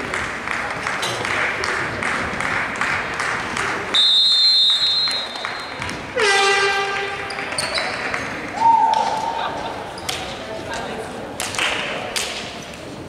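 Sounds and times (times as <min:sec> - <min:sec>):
scattered clapping: 0:00.0 - 0:06.2, 0:06.8 - 0:12.6
people chattering: 0:00.0 - 0:13.0
referee's whistle blast: 0:03.9 - 0:06.8.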